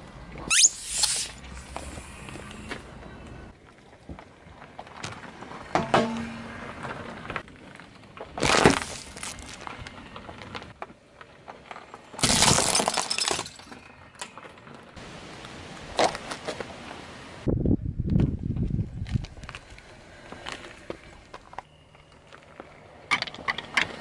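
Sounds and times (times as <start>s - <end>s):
car tyre crushing small objects: 3.5s - 15.0s
wooden sticks cracking and splintering: 3.9s - 14.8s.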